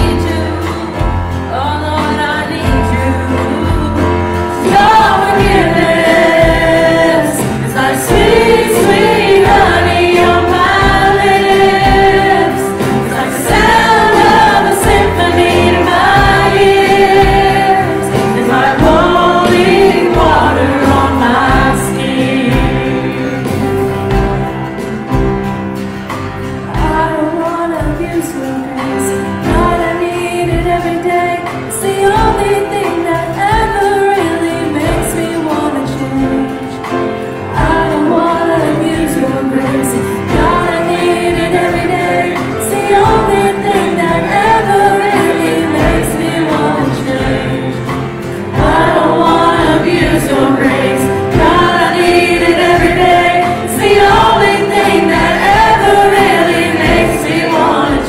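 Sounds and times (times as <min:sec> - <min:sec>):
choir singing: 0:01.9 - 0:58.0
instruments with steady beat: 0:04.0 - 0:27.2, 0:36.3 - 0:58.0.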